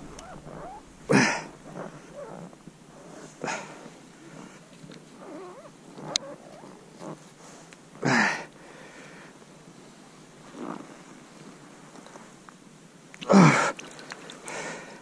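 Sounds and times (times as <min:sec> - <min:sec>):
fish splashing: 0:13.2 - 0:15.0.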